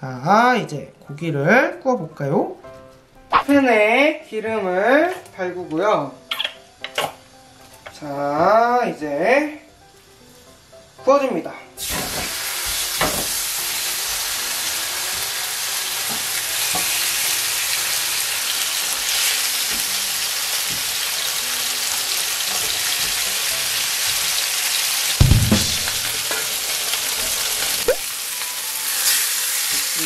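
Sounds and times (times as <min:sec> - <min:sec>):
steaks sizzling in frying pan: 0:11.8 - 0:30.0
heavy clunk: 0:25.2 - 0:26.2
sharp knock: 0:25.2 - 0:26.2.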